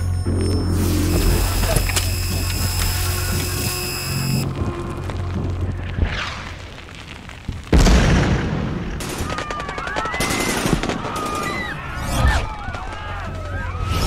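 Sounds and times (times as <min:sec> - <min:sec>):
loud boom with rumbling tail: 0:07.6 - 0:09.0.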